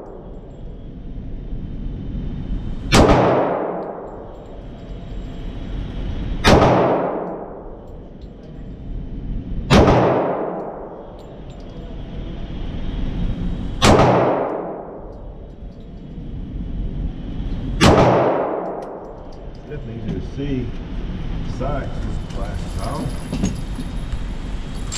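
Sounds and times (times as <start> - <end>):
handgun shots echoing indoors: 2.9 - 4.2, 6.4 - 7.6, 9.7 - 10.9, 13.8 - 15.2, 17.8 - 19.2.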